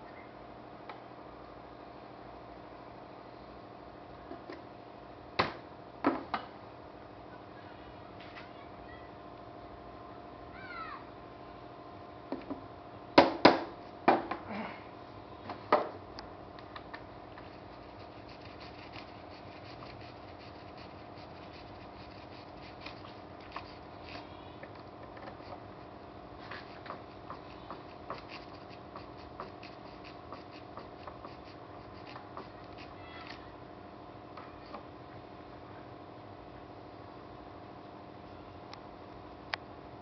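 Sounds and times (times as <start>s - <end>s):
steady hum: 0.0s - 40.0s
knocks on wood: 13.2s - 14.4s.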